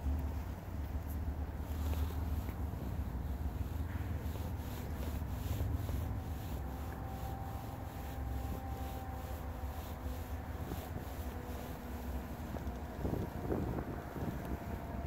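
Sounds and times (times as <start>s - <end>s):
distant freight train drone: 0.0s - 15.0s
wind rumbling on microphone: 0.0s - 15.0s.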